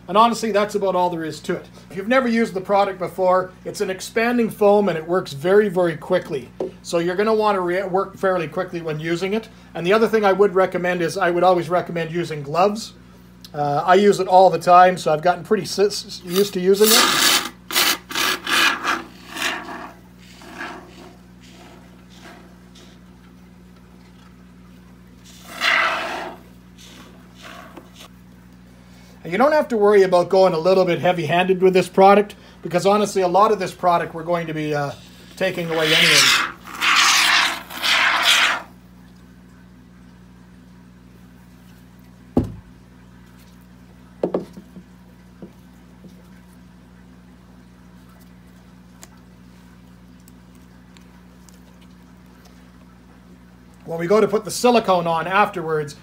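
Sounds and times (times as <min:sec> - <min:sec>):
spray foam hissing: 0:18.9 - 0:23.0, 0:25.3 - 0:28.1, 0:34.9 - 0:38.7.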